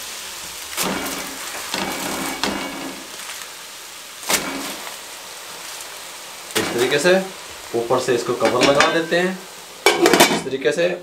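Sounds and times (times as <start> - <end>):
aluminium foil crinkling: 0.5 - 7.4
crackle of foil landing in pot: 0.7 - 3.6, 4.2 - 5.0.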